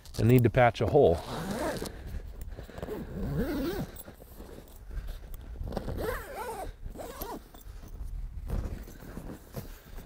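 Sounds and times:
zipper being pulled closed: 1.2 - 1.9, 2.9 - 4.5, 5.7 - 7.4.

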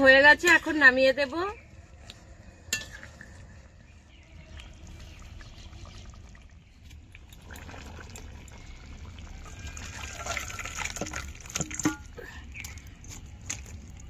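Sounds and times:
thick gravy pouring into bowl: 7.2 - 11.8.

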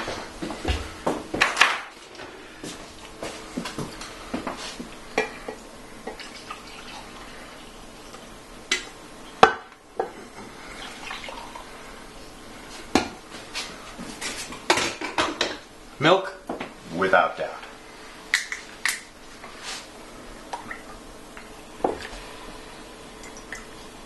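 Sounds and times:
coffee pouring into mugs: 6.0 - 8.3, 10.5 - 11.8.

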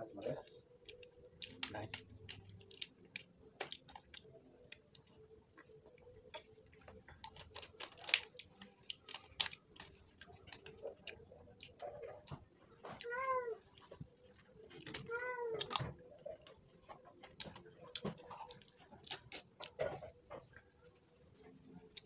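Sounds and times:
close-up eating clicks and smacks: 0.4 - 20.6
cat meowing: 13.0 - 13.6, 15.0 - 15.8.

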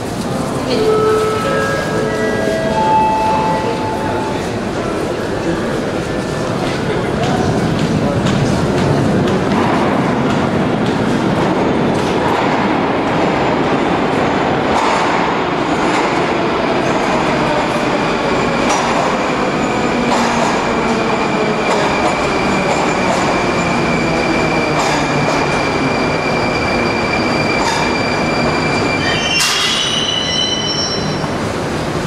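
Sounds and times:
train wheel rumble: 0.0 - 32.0
high brake squeal: 26.3 - 31.4.

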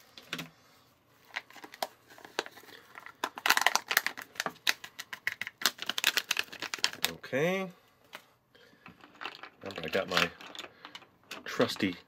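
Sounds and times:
foil pouch crinkling: 1.2 - 7.2.

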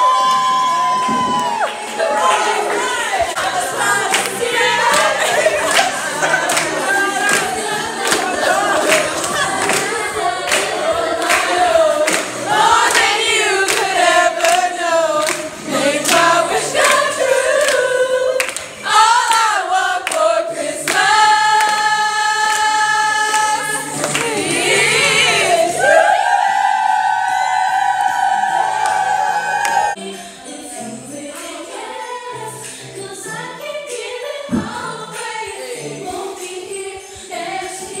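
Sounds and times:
people clapping to a beat: 0.0 - 25.0, 27.3 - 30.0
women singing together: 0.8 - 38.0.

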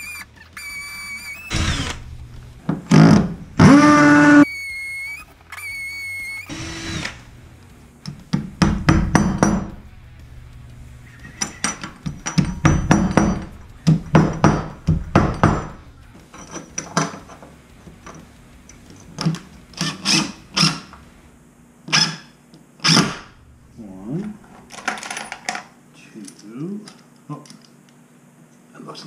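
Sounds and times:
impact driver bursts: 0.0 - 2.1, 2.9 - 4.9, 5.6 - 7.2
hammer tapping wall anchors: 12.3 - 15.7.

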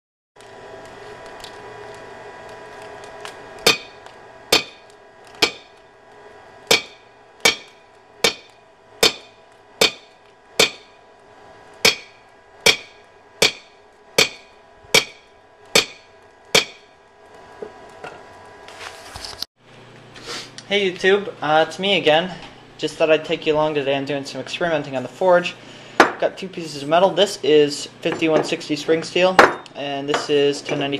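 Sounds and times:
hammer striking steel on anvil: 3.6 - 4.8, 5.4 - 5.8, 6.7 - 11.0, 11.8 - 16.9.

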